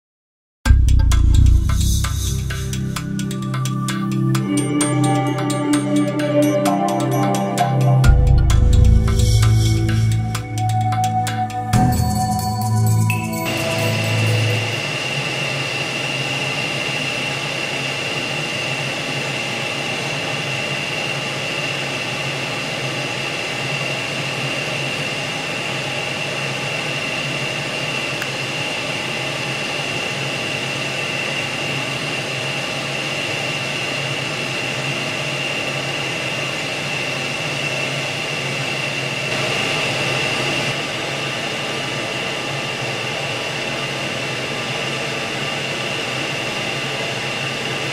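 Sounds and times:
high whine: 0:00.7 - 0:22.7, 0:34.5 - 0:47.9
machine hum and hiss: 0:13.4 - 0:47.9.

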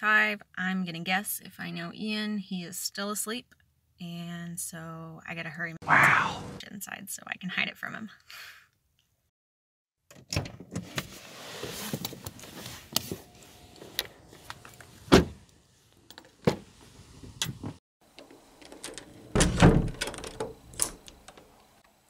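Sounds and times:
car door opening: 0:12.9 - 0:15.4
car door shutting thump: 0:15.1 - 0:15.4
door opening with knocking clatter: 0:17.4 - 0:21.6
door knob rattling: 0:18.1 - 0:21.4.

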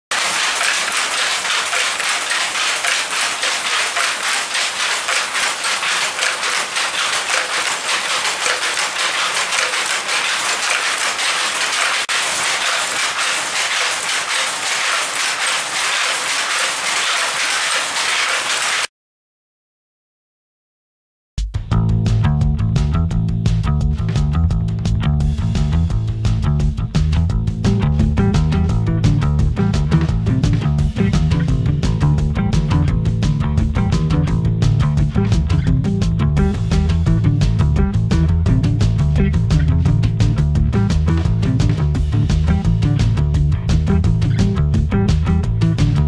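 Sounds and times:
power loom clattering: 0:00.1 - 0:18.9, 0:36.5 - 0:43.2.

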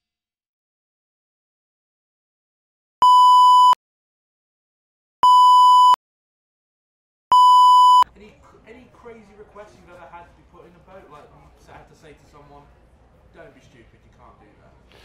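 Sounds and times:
long electronic beeps: 0:05.2 - 0:06.0, 0:07.3 - 0:08.0.

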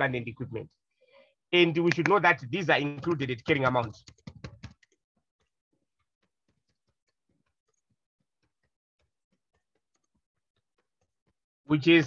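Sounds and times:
computer keyboard typing: 0:03.0 - 0:05.0.

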